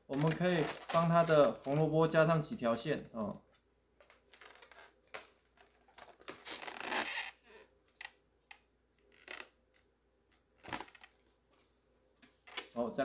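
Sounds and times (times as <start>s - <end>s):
balloons rubbing and squeaking: 0.1s - 2.0s, 4.3s - 7.7s.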